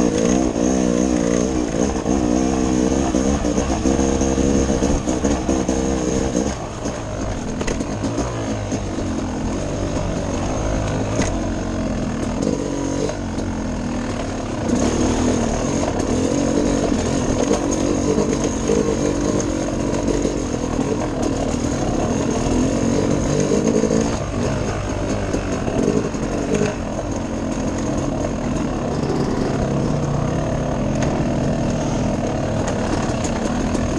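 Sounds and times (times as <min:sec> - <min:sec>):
dirt bike engine: 0:00.0 - 0:33.9.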